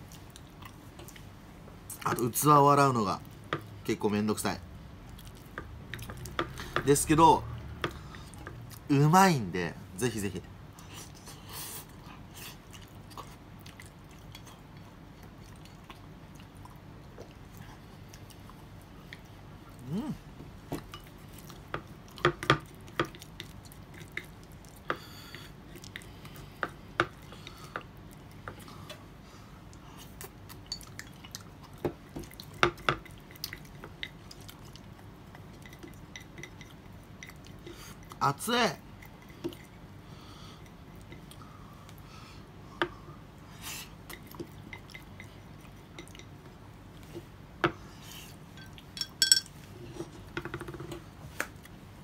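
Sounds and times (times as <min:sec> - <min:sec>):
quiet chewing: 0:00.0 - 0:02.2, 0:05.0 - 0:06.9, 0:10.7 - 0:38.2, 0:38.9 - 0:42.1, 0:42.7 - 0:49.0.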